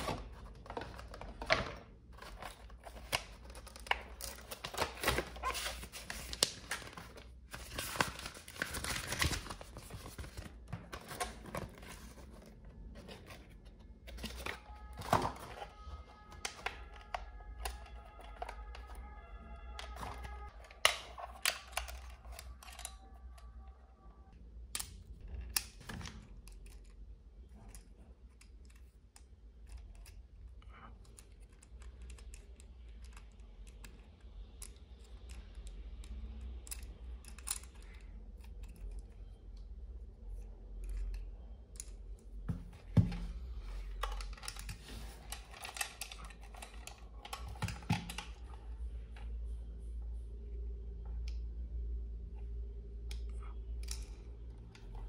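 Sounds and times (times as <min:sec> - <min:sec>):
plastic toy parts clicking and rattling: 0:20.0 - 0:23.5, 0:24.7 - 0:39.4, 0:43.9 - 0:48.5.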